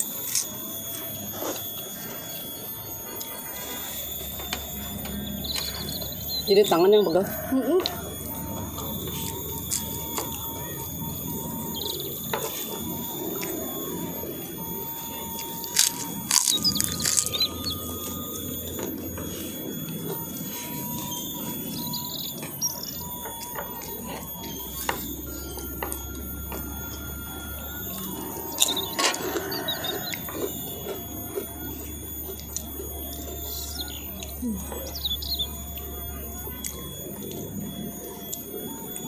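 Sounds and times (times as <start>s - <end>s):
birds chirping faintly: 4.8s - 7.5s, 32.4s - 37.6s
chewing: 15.4s - 18.2s.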